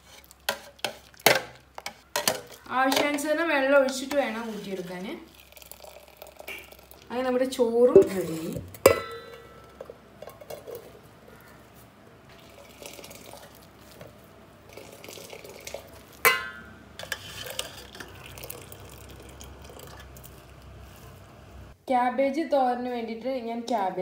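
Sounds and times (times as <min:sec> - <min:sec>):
metal utensils scraping and clinking: 0:00.0 - 0:05.0, 0:08.0 - 0:11.0, 0:16.2 - 0:18.3
water trickling and dripping: 0:04.9 - 0:07.4, 0:17.5 - 0:20.8
metal clank: 0:08.8 - 0:10.8.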